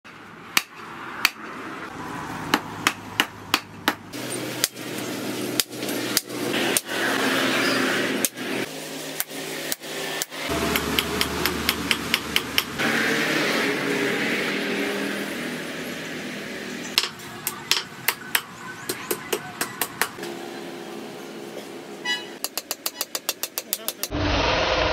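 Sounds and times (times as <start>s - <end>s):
hammer striking steel on anvil: 10.5s - 12.8s, 17.0s - 18.5s.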